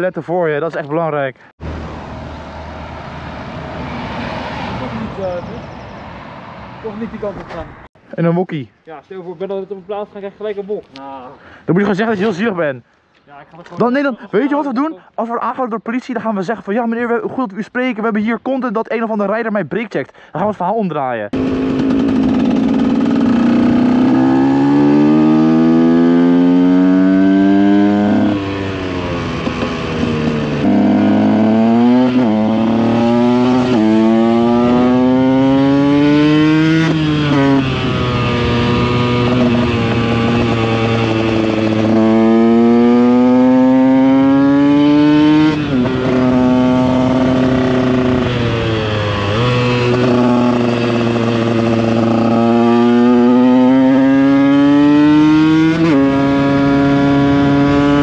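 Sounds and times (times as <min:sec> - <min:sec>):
motorcycle engine shifting gears: 0:21.4 - 0:58.0.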